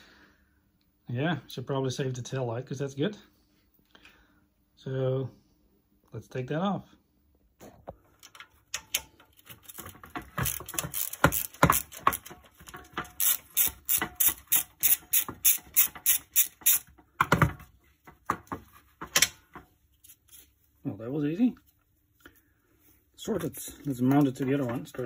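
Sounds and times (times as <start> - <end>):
ratchet wrench clicking: 8.8 - 12.3, 13.0 - 16.9.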